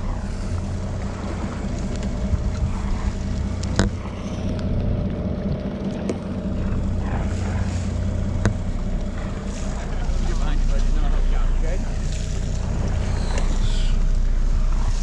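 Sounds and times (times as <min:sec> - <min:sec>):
boat engine humming: 0:00.0 - 0:15.0.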